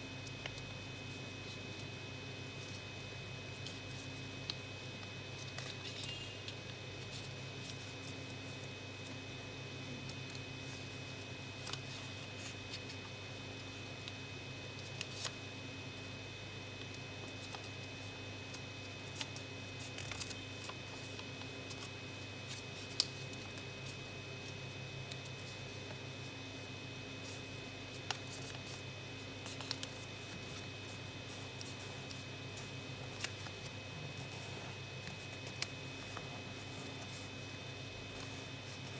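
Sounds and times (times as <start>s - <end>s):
electrical hum: 0.0s - 38.9s
paper rustling and crinkling: 19.1s - 21.9s, 27.2s - 28.8s, 29.4s - 38.9s.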